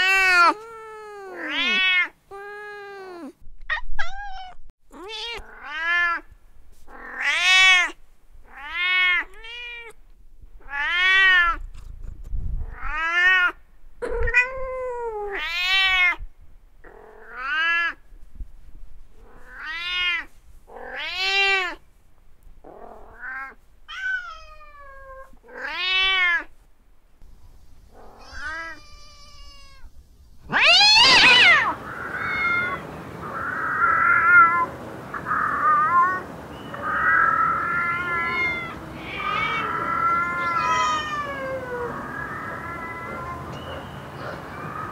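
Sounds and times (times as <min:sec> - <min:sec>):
cat yowling: 0:00.0 - 0:06.2, 0:22.8 - 0:26.5, 0:28.0 - 0:29.9, 0:30.5 - 0:44.9
cats meowing: 0:00.0 - 0:06.2, 0:06.9 - 0:10.0, 0:10.6 - 0:11.7, 0:19.3 - 0:21.8, 0:22.7 - 0:26.5, 0:27.9 - 0:44.9.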